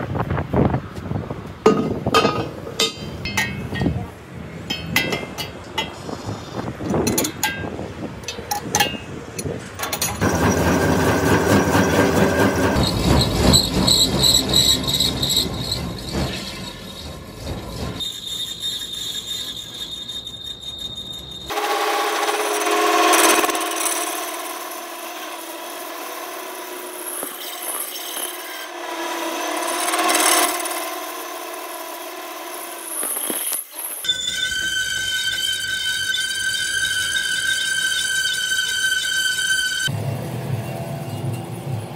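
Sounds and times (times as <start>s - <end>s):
power tool on steel: 9.4s - 40.0s
scraping and rubbing on steel: 33.0s - 39.9s.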